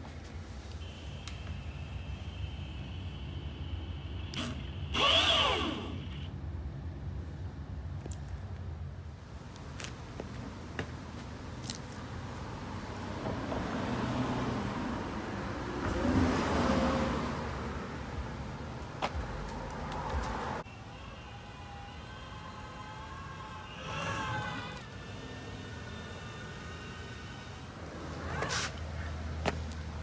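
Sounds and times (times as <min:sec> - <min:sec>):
electric skateboard rolling on asphalt: 0:23.6 - 0:29.1.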